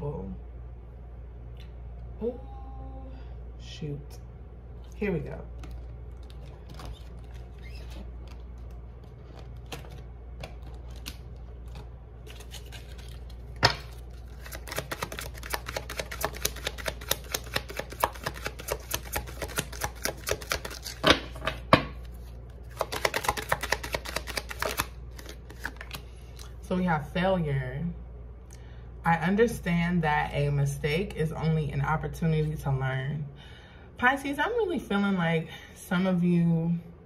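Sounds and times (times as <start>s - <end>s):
cards being shuffled: 5.5s - 21.4s, 22.0s - 26.5s.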